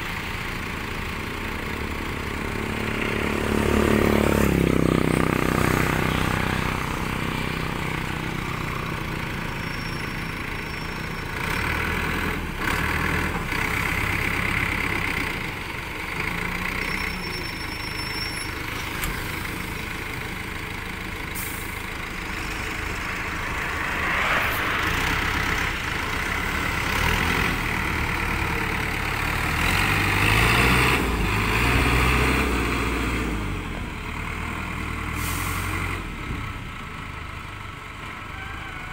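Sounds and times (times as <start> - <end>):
diesel engine revving: 0.0 - 38.1.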